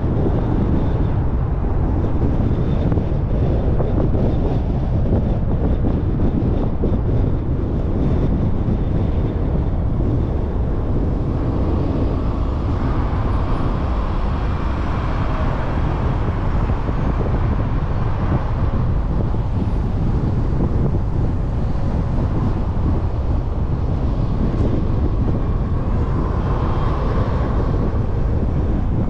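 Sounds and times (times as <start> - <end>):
car tyres and engine rumble: 0.0 - 29.0
wind on microphone: 0.0 - 29.0.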